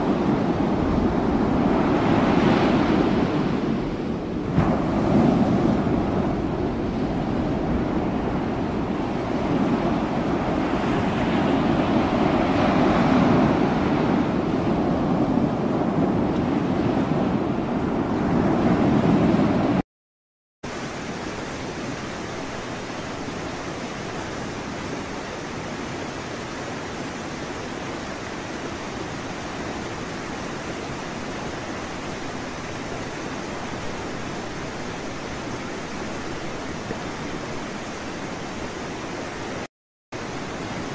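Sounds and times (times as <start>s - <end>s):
open sea: 0.0s - 19.8s, 20.7s - 40.9s
wind rushing on microphone: 0.0s - 19.8s.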